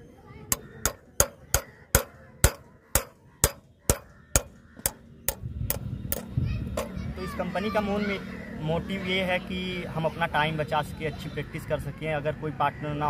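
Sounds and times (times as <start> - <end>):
hammer striking metal peg: 0.5 - 7.0.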